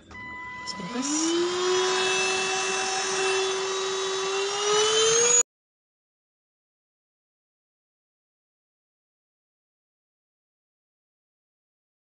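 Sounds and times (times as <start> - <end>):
handheld vacuum cleaner motor whine: 0.0 - 5.4.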